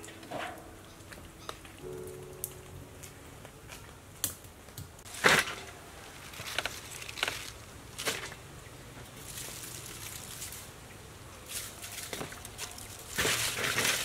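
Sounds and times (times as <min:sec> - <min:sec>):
cabbage leaves rustling and crunching: 0:05.1 - 0:08.4, 0:09.1 - 0:10.8, 0:11.4 - 0:14.0.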